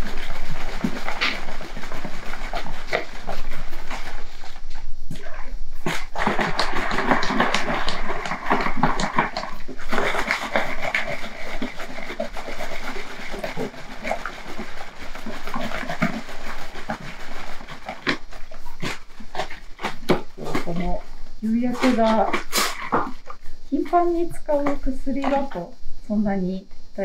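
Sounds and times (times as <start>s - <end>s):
liquid sloshing in plastic bottle: 0.0s - 4.8s, 5.8s - 23.4s
plastic bottle crackling: 5.8s - 21.0s.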